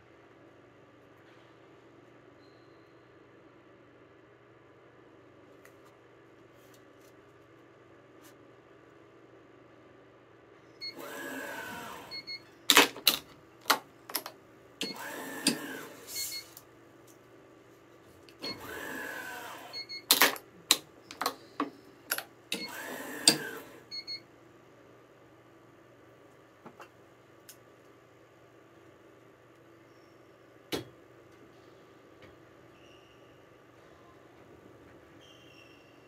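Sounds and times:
stringing machine motor whir: 10.9 - 12.3, 14.8 - 16.5, 18.4 - 19.8, 22.5 - 23.9.

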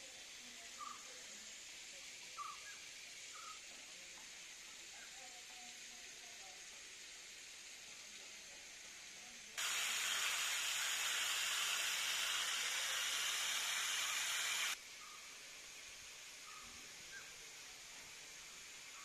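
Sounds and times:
water jet hissing: 6.7 - 14.8.

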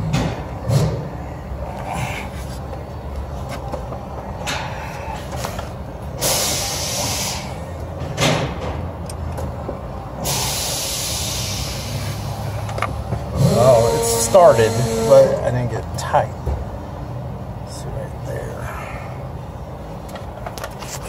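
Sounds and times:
steady low hum: 0.0 - 21.0
arm scraping against hoses: 13.3 - 15.7.

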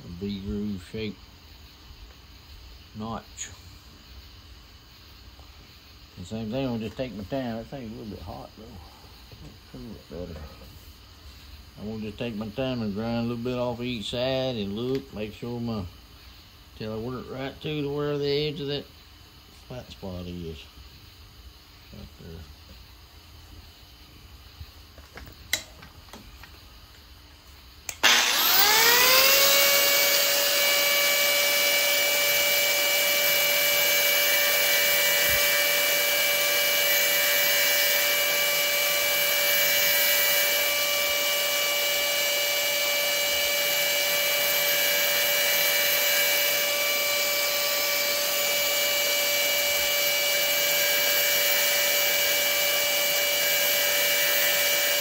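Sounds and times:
rotary grinding tool whining: 27.9 - 55.0.

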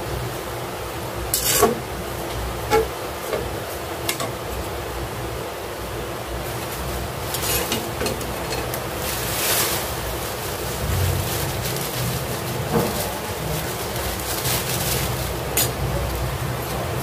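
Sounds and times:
heavy rain: 0.0 - 17.0
utensil scraping cooking pot: 1.3 - 1.9, 7.2 - 10.4.

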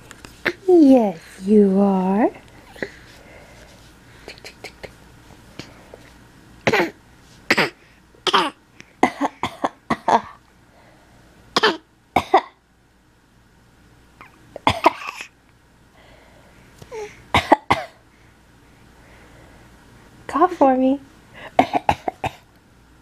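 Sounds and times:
baby coughing: 6.6 - 10.4, 11.6 - 12.6, 14.6 - 15.4, 17.3 - 18.0, 21.5 - 22.5.

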